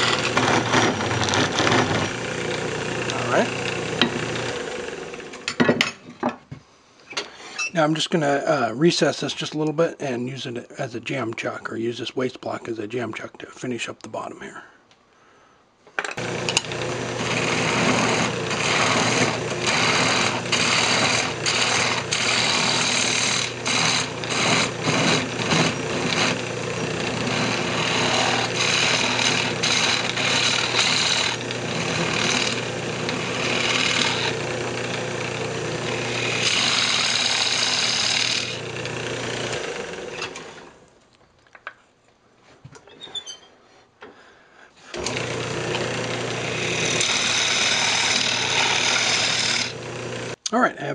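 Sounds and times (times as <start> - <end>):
turning tool scraping wood: 0.0 - 5.5, 16.2 - 40.7, 44.8 - 50.4
wood lathe motor hum: 0.0 - 5.5, 16.2 - 40.8, 44.9 - 50.4.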